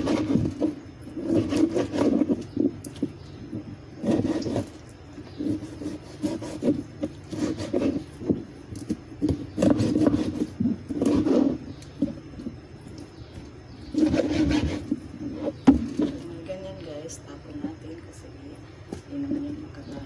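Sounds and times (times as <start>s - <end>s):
knife sawing through meat: 1.2s - 2.4s, 5.4s - 8.1s, 9.6s - 11.6s, 14.0s - 14.9s.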